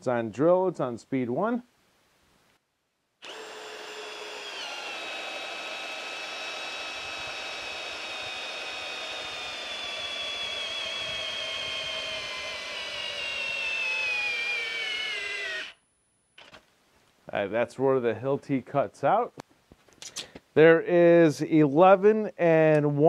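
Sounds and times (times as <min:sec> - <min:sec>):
hammer drill motor whine: 0:03.2 - 0:15.8.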